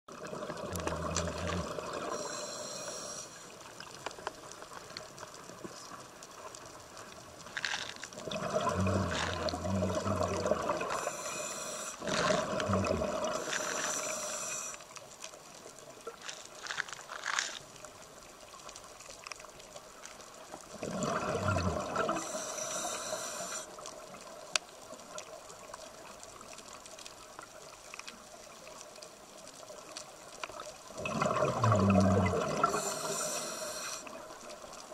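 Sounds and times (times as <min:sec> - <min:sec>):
gurgling exhaled bubbles: 0:00.1 - 0:03.2, 0:08.2 - 0:14.7, 0:20.7 - 0:23.6, 0:30.9 - 0:34.9
steady underwater hiss: 0:00.1 - 0:34.9
regulator inhalation hiss: 0:02.0 - 0:03.5, 0:10.8 - 0:12.1, 0:13.3 - 0:14.8, 0:22.1 - 0:23.8, 0:32.5 - 0:34.2.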